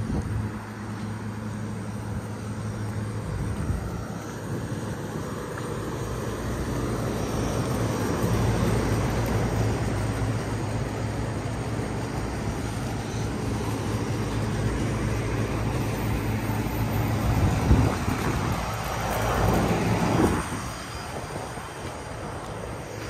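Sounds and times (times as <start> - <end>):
compressor hum: 0.0 - 23.0
condenser fan rushing air: 0.0 - 23.0.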